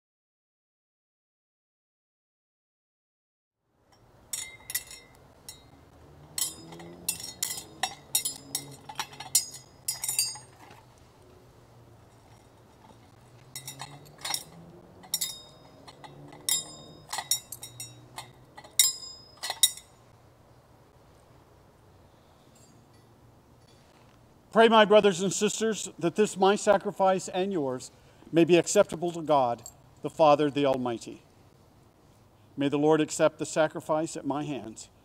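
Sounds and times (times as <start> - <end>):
chalice and glass cruets clinking: 3.9 - 11.0, 11.9 - 20.1, 22.4 - 23.8, 29.2 - 30.1.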